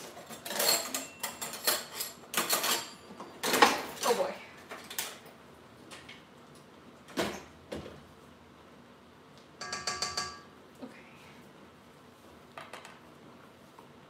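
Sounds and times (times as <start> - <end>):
metal utensils clinking and ringing: 0.1 - 3.6, 9.6 - 10.5
metal utensils knocking: 9.6 - 10.5.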